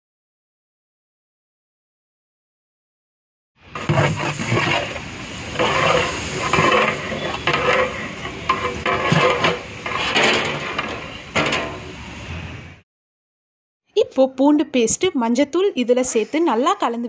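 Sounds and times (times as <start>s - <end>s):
onions sizzling in oil: 3.6s - 12.3s
metal ladle scraping pot: 3.7s - 11.9s.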